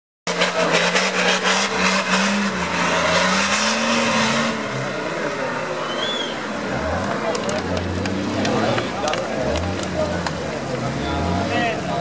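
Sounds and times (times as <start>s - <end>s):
off-road engine revving: 0.3s - 12.0s
rough crackling noise: 6.7s - 11.0s.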